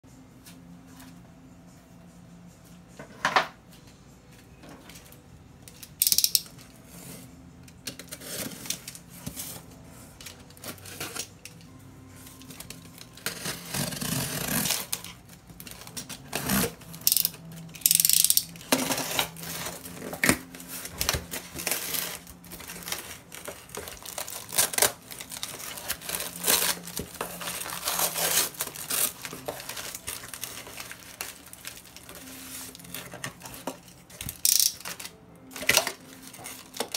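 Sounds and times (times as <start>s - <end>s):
knife slitting packing tape: 12.5s - 36.9s
packing paper rustling: 18.7s - 36.9s.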